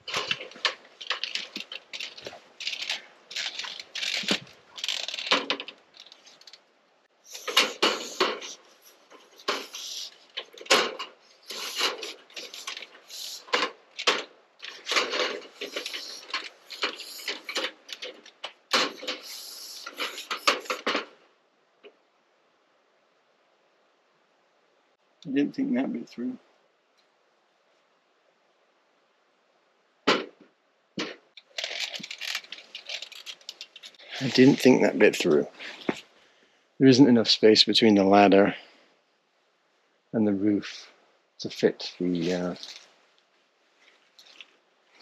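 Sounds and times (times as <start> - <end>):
clattering and rustling of parts: 0.0 - 6.6, 7.3 - 21.2, 31.0 - 36.2, 42.2 - 43.2, 43.8 - 45.0.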